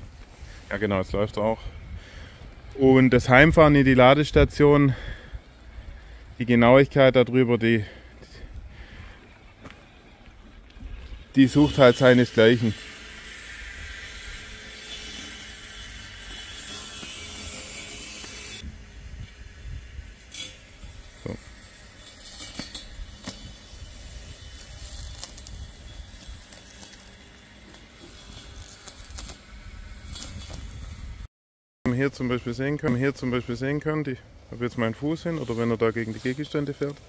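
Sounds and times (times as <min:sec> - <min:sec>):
robotic lawn mower hum: 0:10.8 - 0:31.1.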